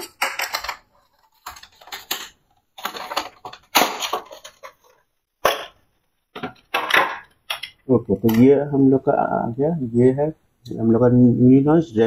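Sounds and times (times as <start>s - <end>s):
earphones rustling and clattering: 0.0s - 8.6s.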